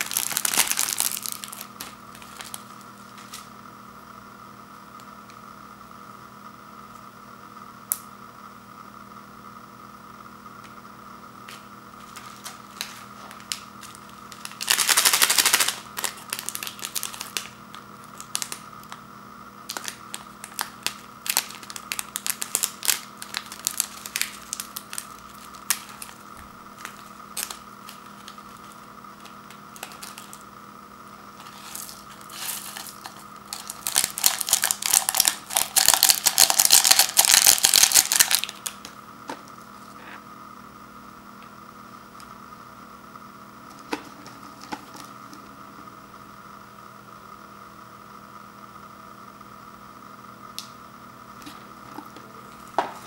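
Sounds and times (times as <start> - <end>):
plastic packet crinkling: 0.0 - 3.3, 12.0 - 19.0, 19.7 - 30.4, 31.4 - 38.8
faint steady hum: 0.0 - 53.0
dried flakes shaken into cup: 12.2 - 17.4, 31.4 - 38.6.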